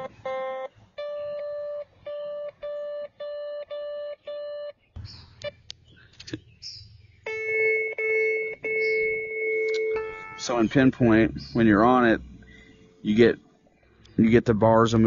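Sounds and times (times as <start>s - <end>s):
metal detector steady tone: 0.0s - 4.7s, 7.3s - 13.2s
metal detector short beeps: 0.0s - 4.8s, 7.3s - 10.6s
clicks: 9.6s - 10.0s.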